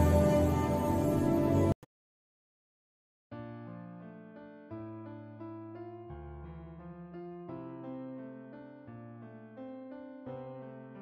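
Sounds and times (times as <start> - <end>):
ambient background music: 0.0 - 1.8.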